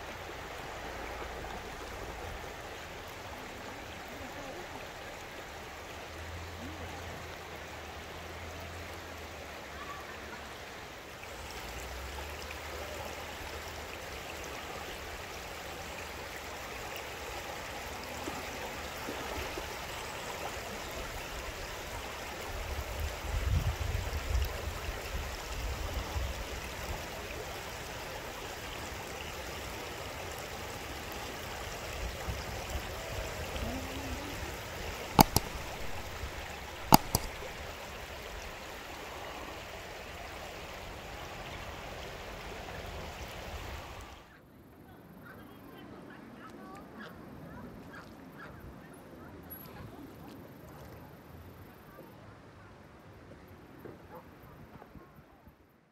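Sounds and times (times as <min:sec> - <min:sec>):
river flowing over stones: 0:00.0 - 0:44.3.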